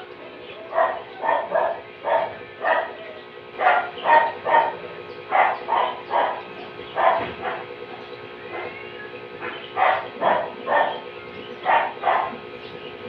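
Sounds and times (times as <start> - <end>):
faint steady hum: 0.0 - 13.0
dog barking: 0.7 - 3.0, 3.6 - 7.8, 8.5 - 8.8, 9.4 - 12.4.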